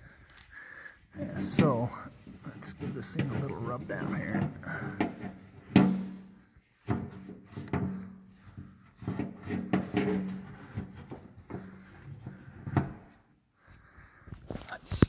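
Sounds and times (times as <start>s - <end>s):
knocks and clunks on metal: 1.2s - 13.2s.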